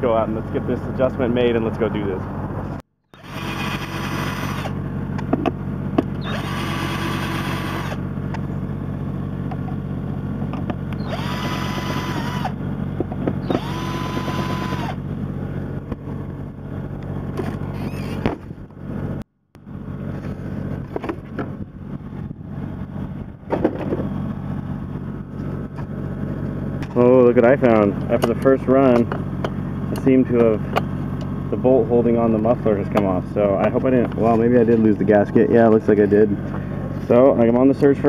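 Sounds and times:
low steady hum: 0:00.0 - 0:38.0
cordless drill whining: 0:03.1 - 0:04.8, 0:06.2 - 0:08.0, 0:10.9 - 0:12.6, 0:13.4 - 0:15.0.

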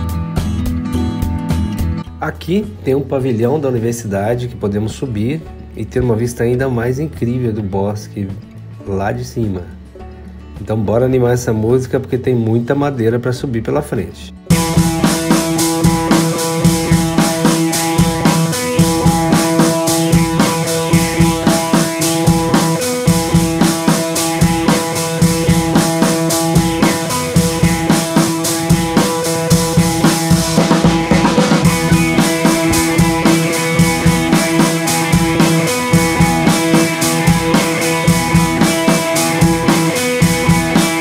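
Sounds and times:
upbeat music with drum kit: 0:00.0 - 0:02.7, 0:14.5 - 0:41.0.

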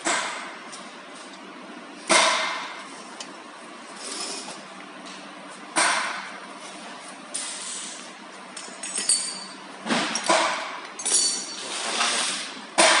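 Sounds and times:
metal machine parts clinking: 0:08.6 - 0:09.6, 0:11.0 - 0:11.7.

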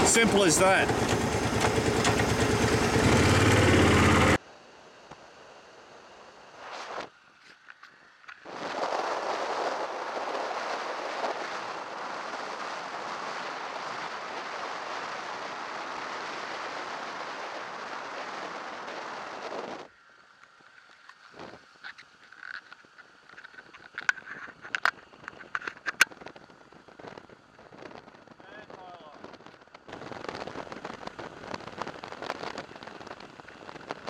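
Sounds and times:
wind rushing over microphone: 0:25.1 - 0:34.0.

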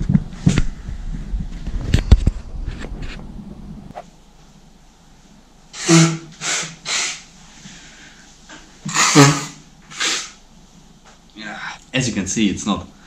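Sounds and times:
man's breathy nasal bursts: 0:05.8 - 0:10.4.

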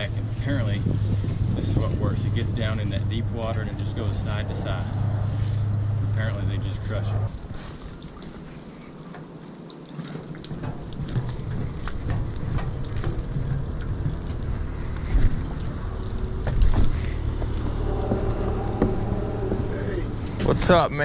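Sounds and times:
low steady rumble: 0:00.0 - 0:21.0
footsteps on boat deck: 0:10.3 - 0:19.7.

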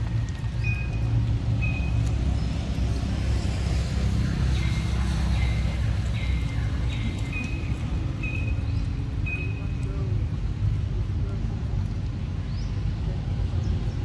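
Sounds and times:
high chirps: 0:04.6 - 0:09.8.

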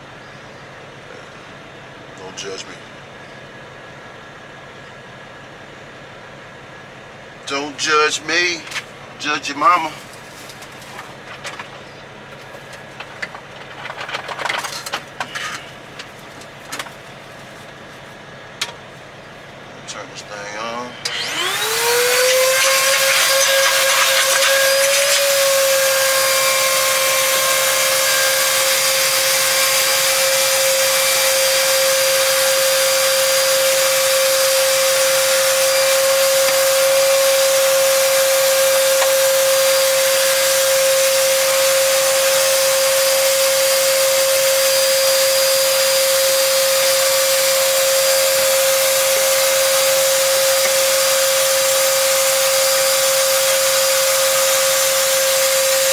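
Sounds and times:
vacuum cleaner motor whine: 0:20.1 - 0:55.9.

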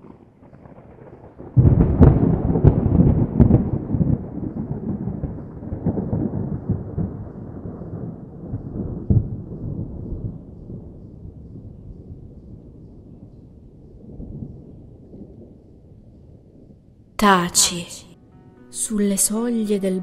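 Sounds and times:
rain falling: 0:00.0 - 0:15.5
thunder cracking and rumbling: 0:00.0 - 0:18.0.

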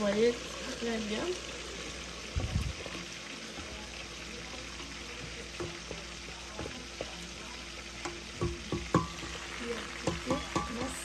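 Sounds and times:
vegetables sizzling in hot oil: 0:00.0 - 0:11.0
wooden spatula knocking pot: 0:05.6 - 0:06.0, 0:08.0 - 0:09.4, 0:10.0 - 0:11.0.

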